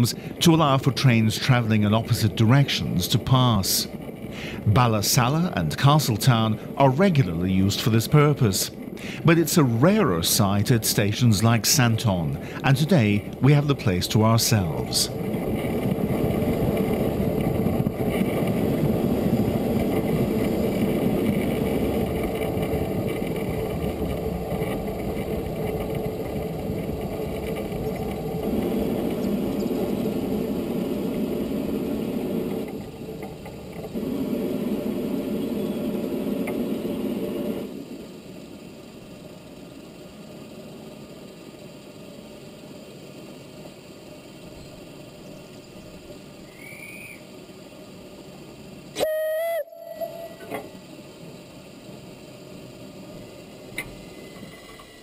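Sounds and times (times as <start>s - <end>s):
train rumble and rattle: 0.0s - 40.1s.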